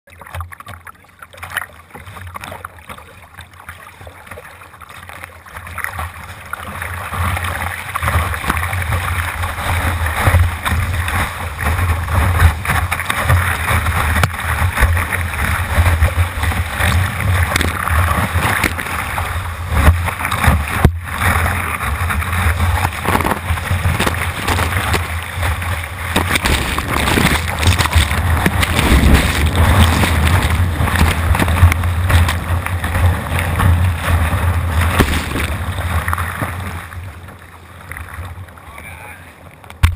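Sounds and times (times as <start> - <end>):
low rumble of water: 0.0 - 39.9
water rushing and splashing: 0.1 - 39.9
wind buffeting microphone: 15.8 - 36.8.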